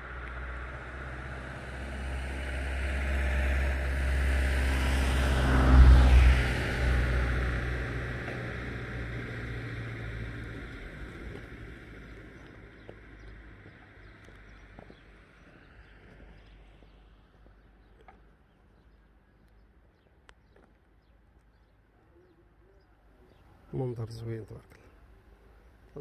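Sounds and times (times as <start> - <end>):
vehicle engine rumble: 0.0 - 22.5
faint bird calls: 12.4 - 23.8.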